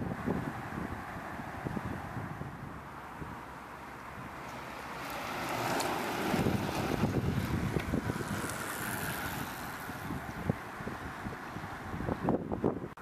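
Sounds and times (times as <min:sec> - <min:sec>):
wind buffeting microphone: 0:00.0 - 0:03.5, 0:04.2 - 0:13.0
trikes passing by: 0:00.0 - 0:13.0.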